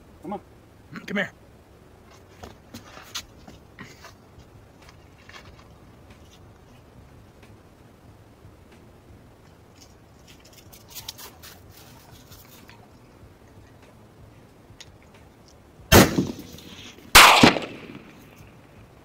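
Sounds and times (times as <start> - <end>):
rifle shots: 15.9 - 18.4.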